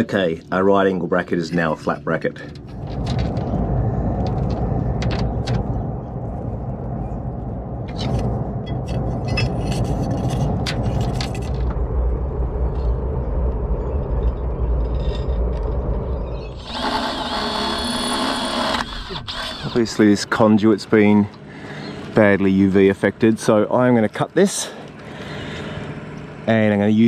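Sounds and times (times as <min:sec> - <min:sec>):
steady low rumble: 0:00.0 - 0:27.0
wire clicks and scrapes: 0:07.9 - 0:11.8, 0:14.3 - 0:20.0.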